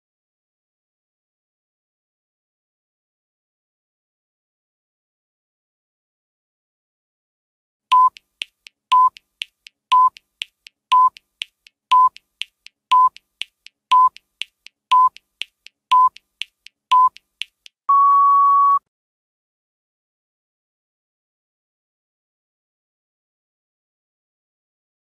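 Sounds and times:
long steady beep: 7.9s - 8.2s, 17.9s - 18.8s
short electronic beeps: 7.9s - 8.2s, 8.9s - 9.2s, 9.9s - 10.2s, 10.9s - 11.2s, 11.9s - 12.2s, 12.9s - 13.2s, 13.9s - 14.2s, 14.9s - 15.2s, 15.9s - 16.2s, 16.9s - 17.2s, 17.9s - 18.8s
faint ticks: 7.9s - 17.8s.

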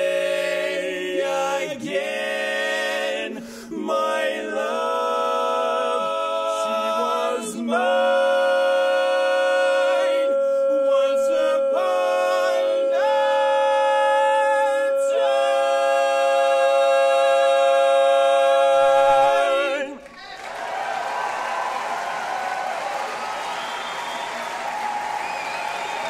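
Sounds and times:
men singing in close harmony: 0.0s - 20.0s.

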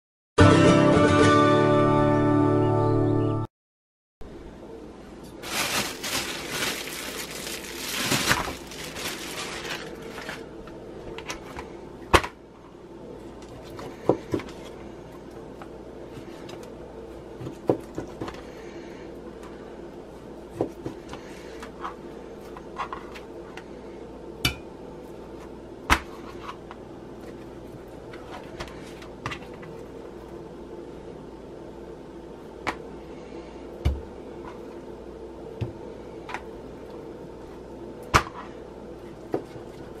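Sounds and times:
steady low hum: 4.2s - 40.0s
plastic wrapping rustling: 5.4s - 10.6s.

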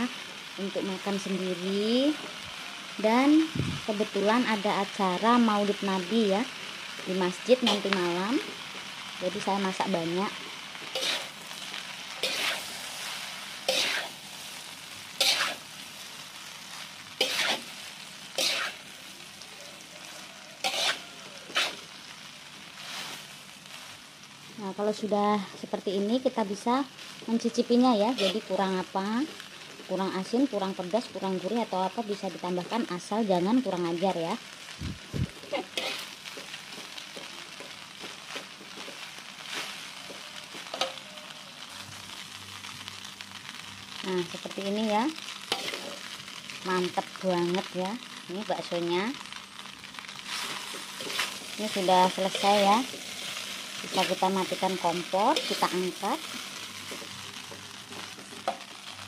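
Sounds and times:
noodles sizzling in a wok: 0.0s - 59.0s
metal spatula scraping wok: 10.9s - 15.8s, 16.7s - 19.0s, 19.9s - 22.0s, 28.1s - 28.6s, 35.5s - 36.6s, 40.6s - 41.0s, 45.4s - 46.2s, 50.3s - 58.7s
metal spatula scraping pan: 11.0s - 11.4s, 12.2s - 12.7s, 17.2s - 17.7s, 20.6s - 21.8s, 35.5s - 36.2s.

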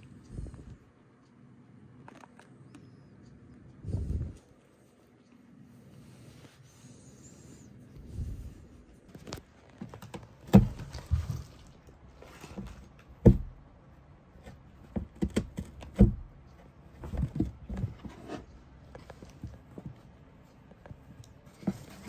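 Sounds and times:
scratching and rustling: 4.0s - 13.3s, 14.4s - 22.0s
cat bumping cardboard walls: 9.9s - 11.7s, 12.3s - 13.6s, 14.4s - 18.4s.

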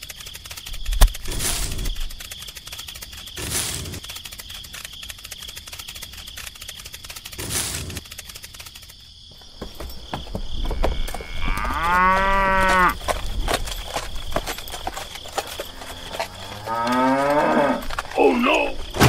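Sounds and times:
cow mooing: 11.0s - 13.0s, 15.7s - 17.9s.

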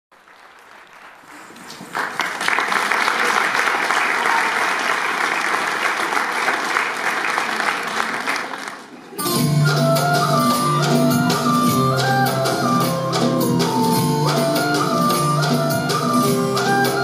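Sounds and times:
audience applauding: 0.1s - 9.2s.

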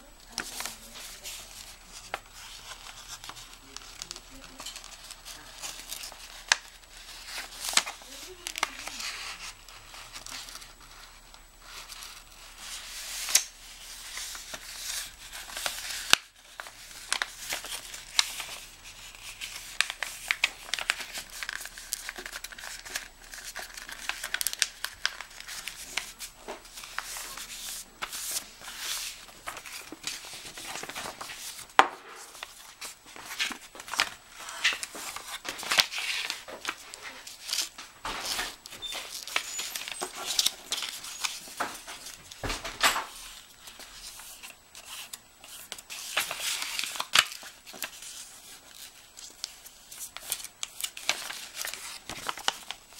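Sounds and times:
paper rustling and crinkling: 0.2s - 52.9s.

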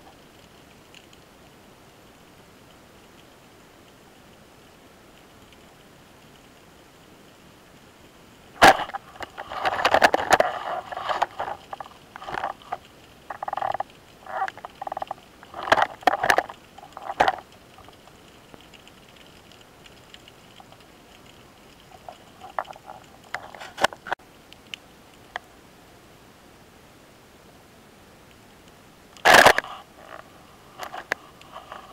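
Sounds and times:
underwater clicks and knocks: 8.6s - 20.8s.

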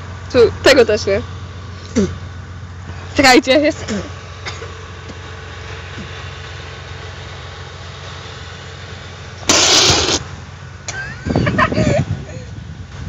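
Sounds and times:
engine humming: 0.0s - 13.0s.

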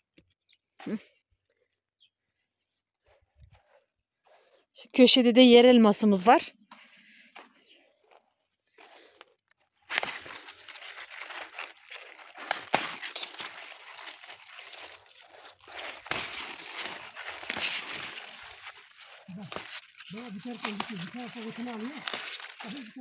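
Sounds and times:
garden plants rustling and crunching: 6.1s - 23.0s.

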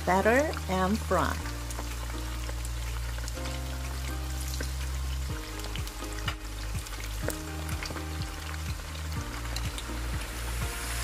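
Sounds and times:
background music with bass: 0.0s - 11.0s
chicken deep-frying in oil: 0.0s - 11.0s.

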